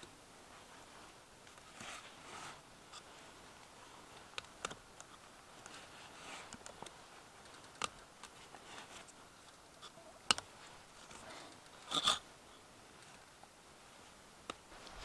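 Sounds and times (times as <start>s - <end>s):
faint hiss: 0.0s - 15.0s.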